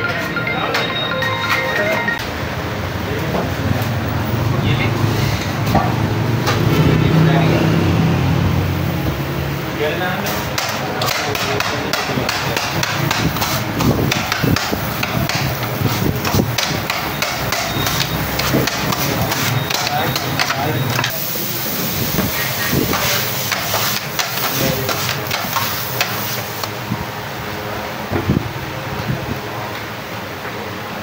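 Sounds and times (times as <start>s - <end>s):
metal choppers clattering on griddle: 10.3s - 21.2s, 22.2s - 26.4s.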